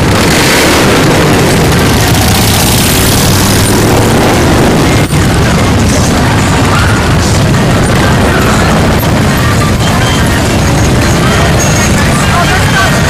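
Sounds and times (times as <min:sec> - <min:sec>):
motorcycles rumbling past: 0:00.0 - 0:07.3.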